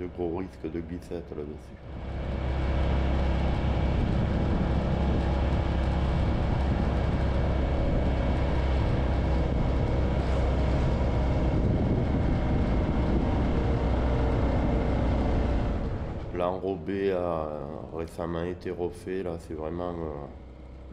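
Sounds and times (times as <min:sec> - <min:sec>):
motorcycle engine running: 0:01.7 - 0:17.7
wind rushing over microphone: 0:01.7 - 0:17.9.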